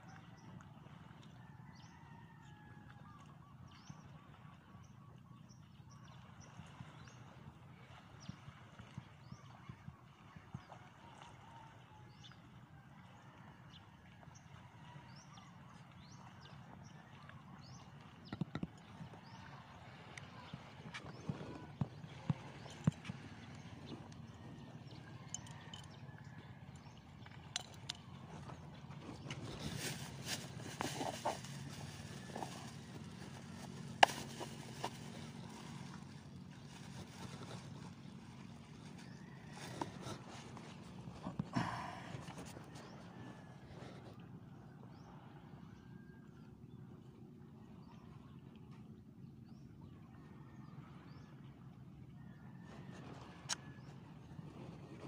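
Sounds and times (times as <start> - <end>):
plastic bag and tub handled: 29.1 - 38.1.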